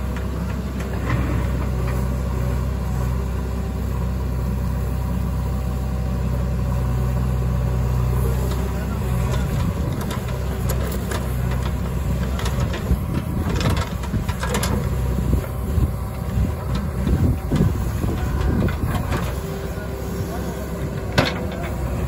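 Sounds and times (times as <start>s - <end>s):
diesel engine under load: 0.0s - 22.0s
soil and stones clattering on metal: 21.0s - 22.0s.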